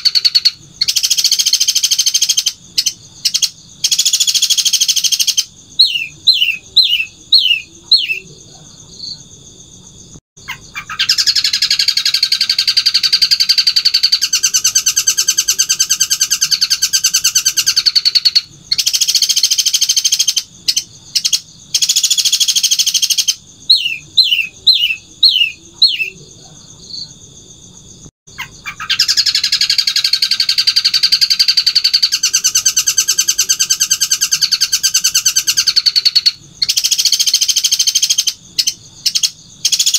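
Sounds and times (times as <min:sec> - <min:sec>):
bird singing whistled notes: 0:00.0 - 0:08.3, 0:10.5 - 0:26.2.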